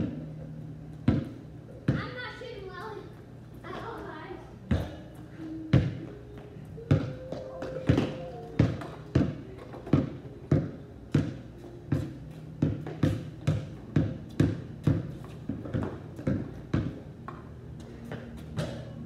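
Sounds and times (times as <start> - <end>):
basketball bouncing on concrete: 1.0 - 2.2, 4.7 - 5.0, 5.7 - 6.1, 6.9 - 17.5.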